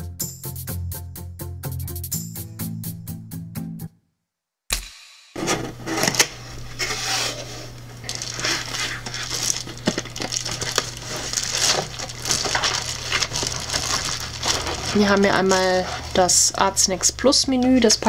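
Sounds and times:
steady low hum: 5.4s - 18.0s
bubble wrap crinkling: 5.8s - 17.0s.

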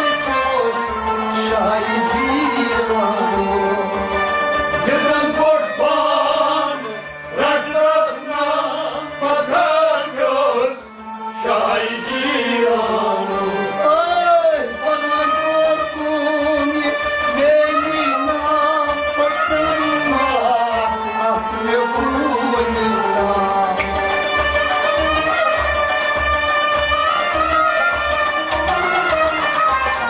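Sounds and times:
man singing: 0.0s - 4.1s, 4.8s - 24.2s
harmonium holding notes: 0.0s - 30.0s.

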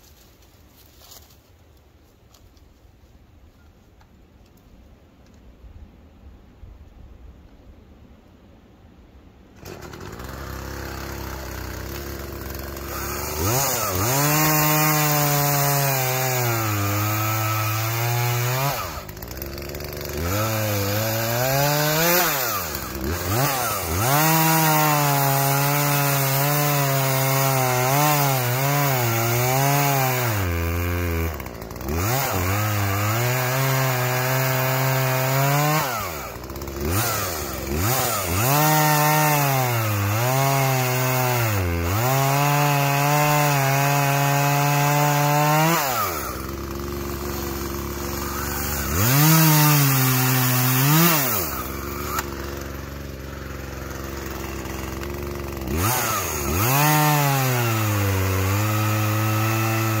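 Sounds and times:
chainsaw cutting log: 9.6s - 60.0s
chainsaw engine revving: 9.6s - 60.0s.

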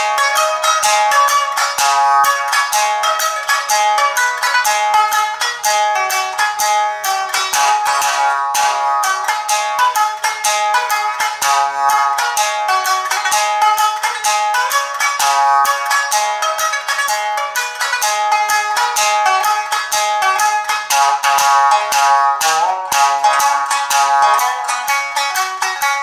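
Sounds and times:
shamisen plucked notes: 0.0s - 26.0s.

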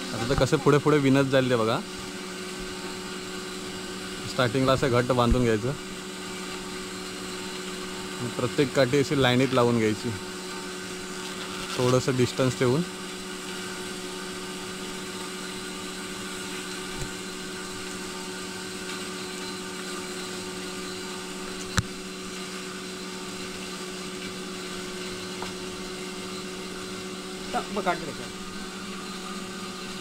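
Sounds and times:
steady machine hum: 0.0s - 30.0s.

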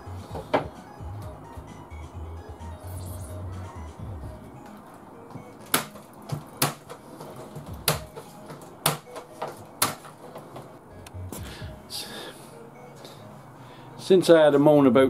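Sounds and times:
nails driven into wood: 5.7s - 7.0s.

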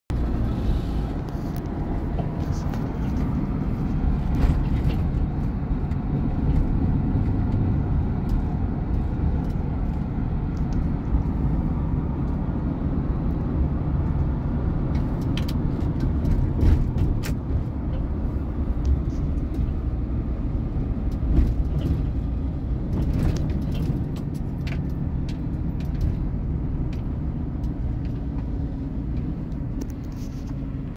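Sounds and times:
engine and road rumble: 0.0s - 30.9s.

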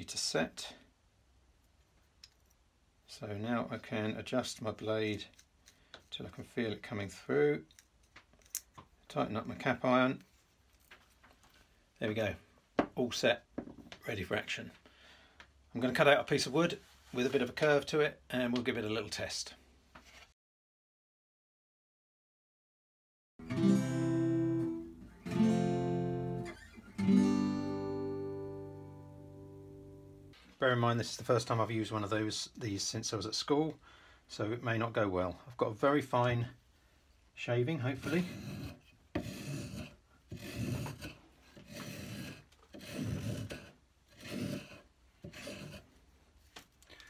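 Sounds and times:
acoustic guitar chords strummed: 23.4s - 30.3s
spokeshave rasping on wood: 37.9s - 46.0s.

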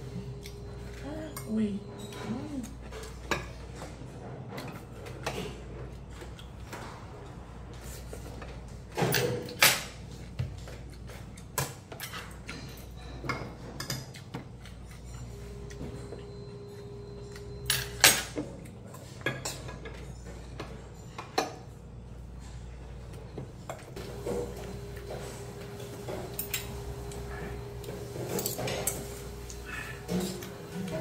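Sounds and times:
low steady hum: 0.0s - 11.4s, 12.2s - 20.8s.

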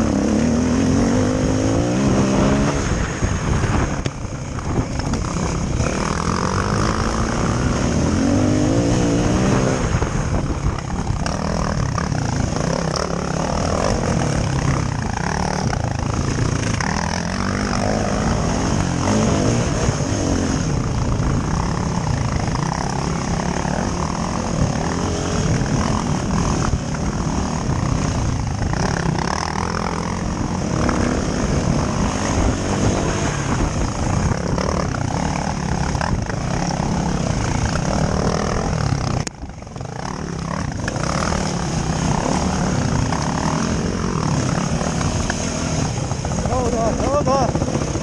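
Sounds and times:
dirt bike engine revving: 0.0s - 48.0s.

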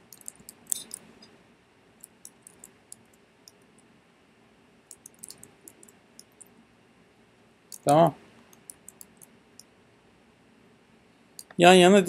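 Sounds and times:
computer mouse clicks: 0.0s - 1.3s, 2.0s - 3.6s, 4.9s - 6.5s, 7.7s - 9.7s.

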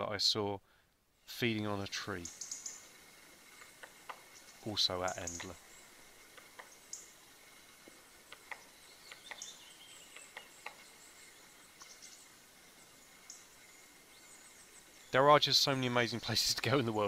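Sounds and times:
faint clicks: 3.5s - 5.6s, 6.3s - 7.1s, 7.8s - 10.8s.

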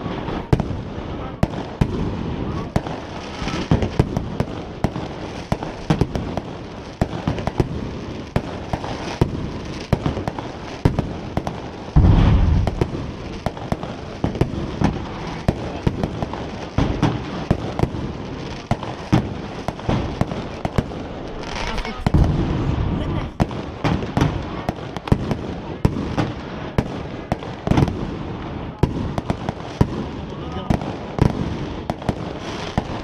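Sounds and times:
fireworks cracks and pops: 0.0s - 33.0s
heavy firework boom: 11.9s - 18.1s, 19.2s - 24.7s.

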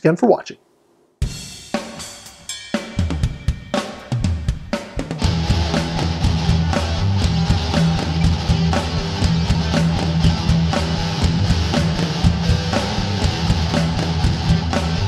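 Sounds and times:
rock music: 1.2s - 15.0s.

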